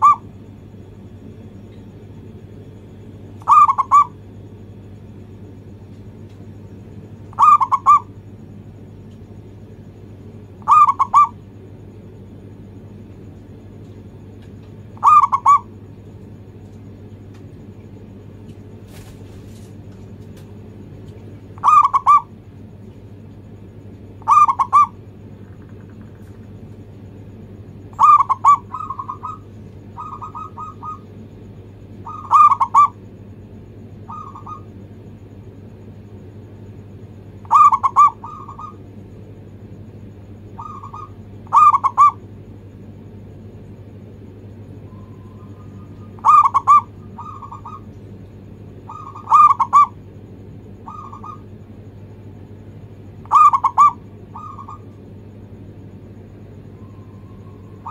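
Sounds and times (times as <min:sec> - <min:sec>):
dove cooing: 0:00.0 - 0:04.4, 0:07.2 - 0:08.3, 0:10.5 - 0:11.5, 0:13.5 - 0:16.0, 0:21.4 - 0:22.4, 0:24.0 - 0:26.4, 0:27.8 - 0:33.2, 0:33.9 - 0:34.8, 0:37.3 - 0:38.9, 0:40.4 - 0:42.3, 0:44.8 - 0:51.7, 0:53.0 - 0:55.0, 0:56.6 - 0:57.9
steady low hum: 0:00.0 - 0:57.9.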